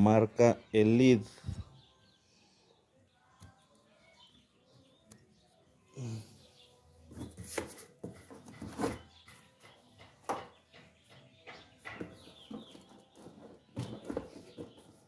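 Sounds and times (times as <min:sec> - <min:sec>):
blade scraping cardboard: 0:07.1 - 0:09.2.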